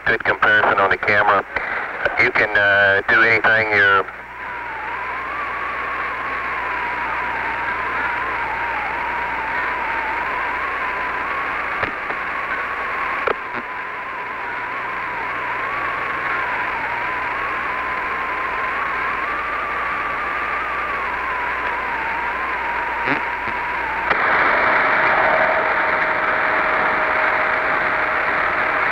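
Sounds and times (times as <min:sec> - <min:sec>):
radio hiss: 0:00.0 - 0:28.9
radio clicks: 0:11.7 - 0:13.7, 0:23.0 - 0:24.4.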